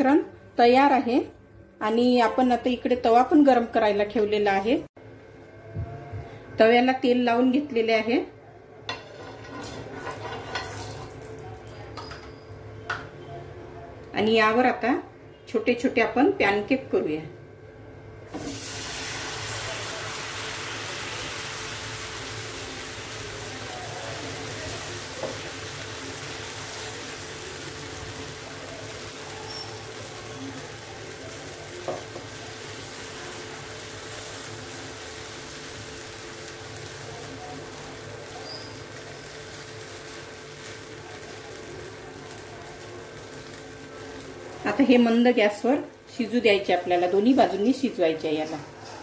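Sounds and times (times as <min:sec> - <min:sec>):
batter sizzling in oil: 0:09.0 - 0:11.8, 0:18.3 - 0:45.7.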